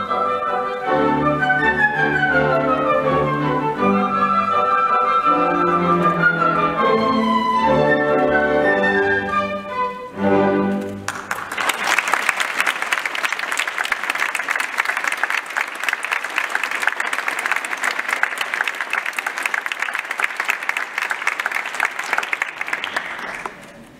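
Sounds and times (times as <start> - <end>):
orchestra music: 0.0 - 11.6
audience applauding: 11.0 - 23.9.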